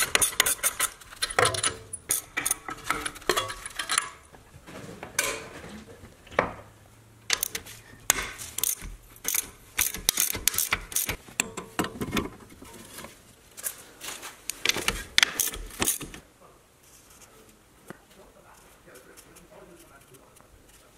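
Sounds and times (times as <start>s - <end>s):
socket ratchet clicking: 7.3s - 11.5s.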